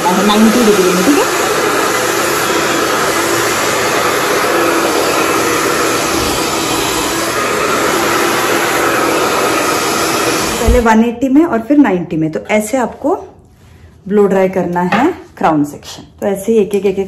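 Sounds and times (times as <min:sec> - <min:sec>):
hair dryer blowing: 0:00.0 - 0:11.1.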